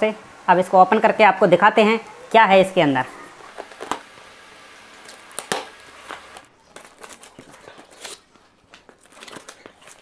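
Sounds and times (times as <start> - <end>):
loud cardboard snap: 5.3 - 6.2.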